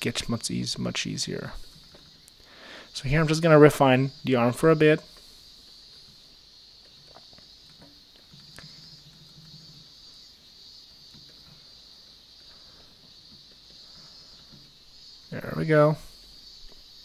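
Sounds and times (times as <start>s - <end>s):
high-pitched hiss: 0.0s - 17.0s.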